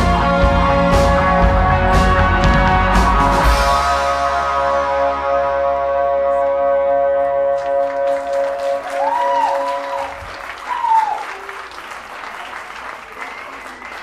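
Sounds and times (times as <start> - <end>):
rock band held chord: 0.0 - 8.8
audience applause: 7.5 - 14.0
whoops of cheering: 8.5 - 11.7.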